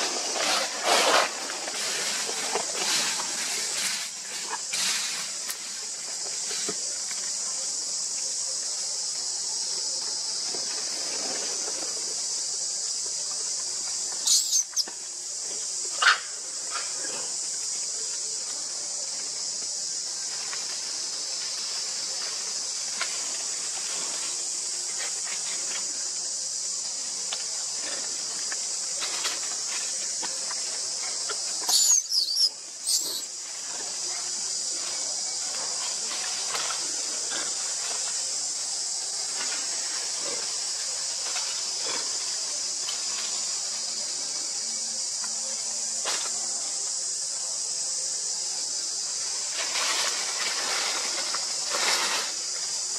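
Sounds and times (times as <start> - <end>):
insects chorus: 0.0 - 52.9
baby monkey squeaky cries: 14.2 - 14.8, 31.7 - 33.3.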